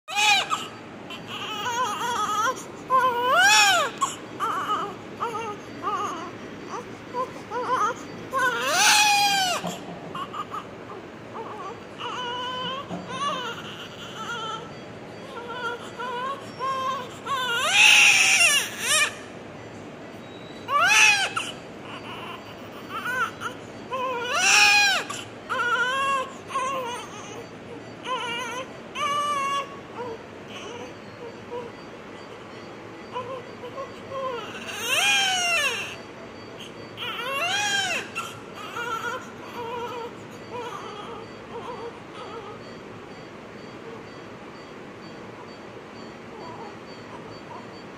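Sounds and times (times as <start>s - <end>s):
newborn baby crying: 0.1s - 19.3s, 20.6s - 42.9s, 45.4s - 47.8s.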